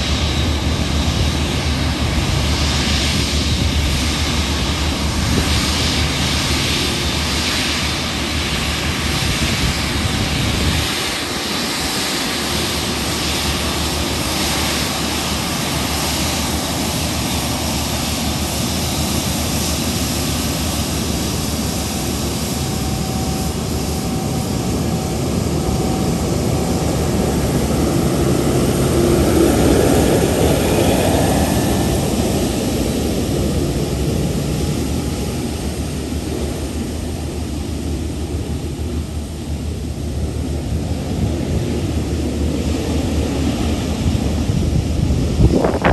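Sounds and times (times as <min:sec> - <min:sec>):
jet engines whining and rumbling: 0:00.0 - 0:45.9.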